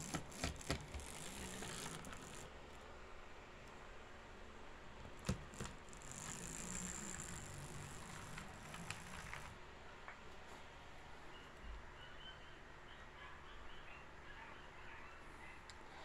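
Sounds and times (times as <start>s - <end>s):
small electric motor whirring: 0.0s - 2.6s, 5.3s - 9.6s.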